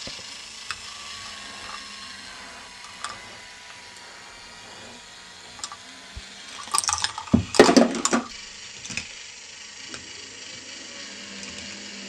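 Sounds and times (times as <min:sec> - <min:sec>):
machine whirring: 0:00.0 - 0:12.0
plastic balls clattering on track: 0:05.6 - 0:05.8, 0:06.5 - 0:09.2.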